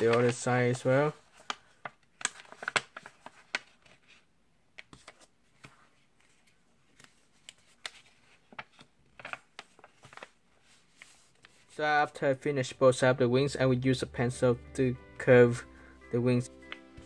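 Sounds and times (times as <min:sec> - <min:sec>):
paper being folded and creased: 0:00.0 - 0:11.8.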